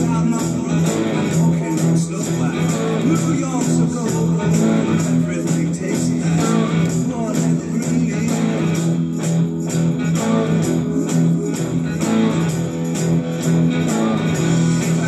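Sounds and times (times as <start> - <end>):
electric guitar blues rock riff: 0.0 - 15.0
recorded rock song with drums: 0.0 - 15.0.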